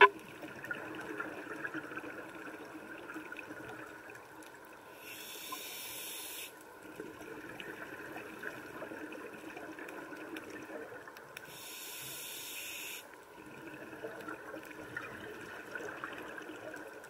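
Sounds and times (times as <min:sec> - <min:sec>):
underwater crackle: 0:00.0 - 0:17.0
breath through scuba regulator: 0:11.4 - 0:13.0.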